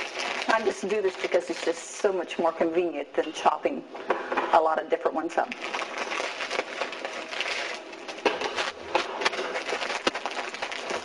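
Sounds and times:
plastic bag crinkling: 0.0s - 2.2s, 5.4s - 11.0s.

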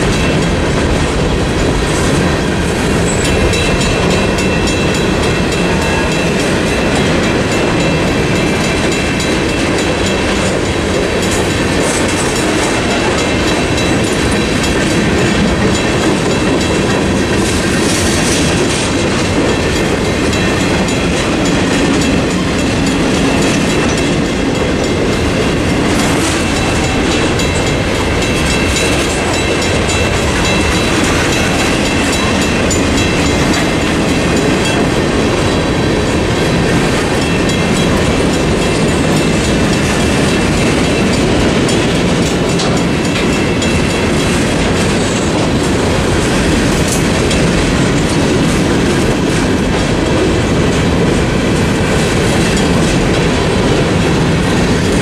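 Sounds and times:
train wheels clattering over rails: 0.0s - 55.0s
mechanical crossing bell ringing: 19.0s - 35.1s.

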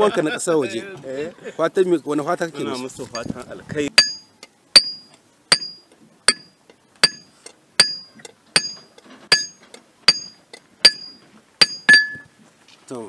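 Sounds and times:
hammer striking metal on anvil: 4.0s - 12.3s.

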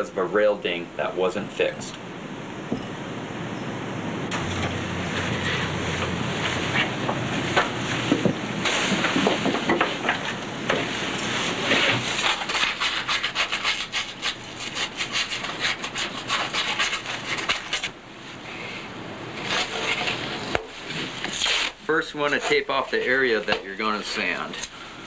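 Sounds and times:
rubbing and scraping on hard surface: 4.5s - 18.0s, 19.4s - 24.7s.

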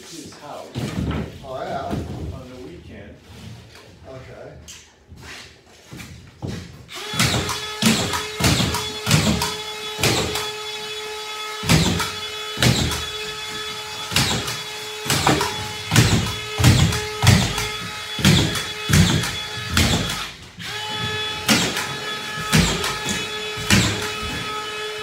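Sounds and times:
screw gun whining: 6.9s - 24.8s
screws driven into drywall: 6.9s - 24.8s.

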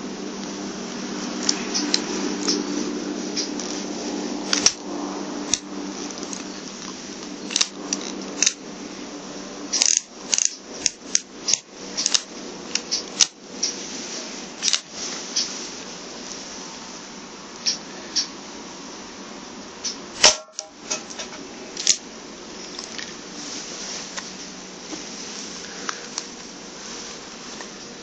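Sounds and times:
revolver metallic clicks: 4.5s - 4.9s, 5.5s - 8.6s, 9.7s - 13.8s, 14.6s - 15.5s, 19.8s - 22.0s.

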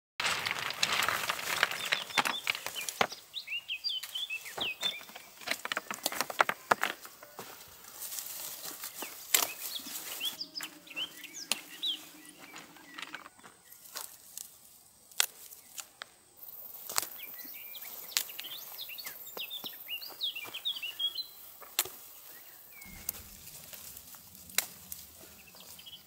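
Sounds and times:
stones clicking and knocking: 0.2s - 3.2s, 4.0s - 7.4s
vines and leaves rustling: 0.2s - 26.0s
small birds chirping: 0.9s - 26.0s.

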